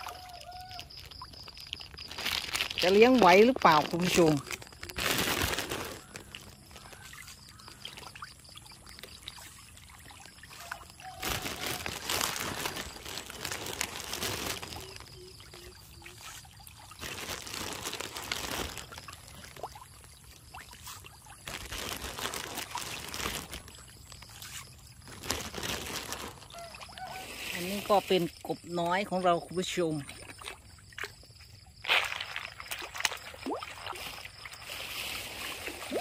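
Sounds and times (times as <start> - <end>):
pellets pattering on water: 0.0 - 28.4, 31.8 - 36.0.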